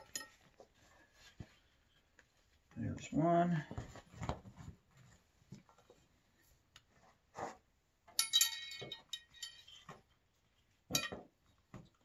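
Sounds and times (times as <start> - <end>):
straps rustling and clattering: 0.0 - 12.0
metallic clink and jingle: 8.2 - 9.8.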